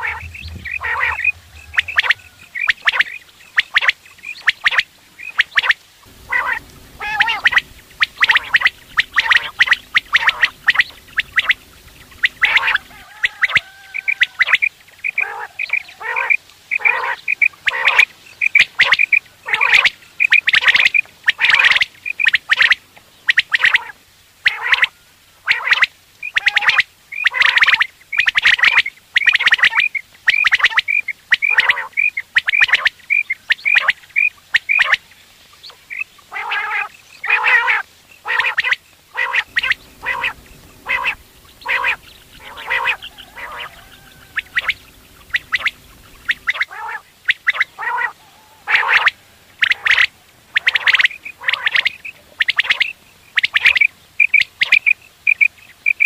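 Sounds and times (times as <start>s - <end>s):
faint low hum: 0.0s - 3.6s, 6.0s - 16.0s, 39.1s - 46.6s
quails calling: 0.0s - 56.0s.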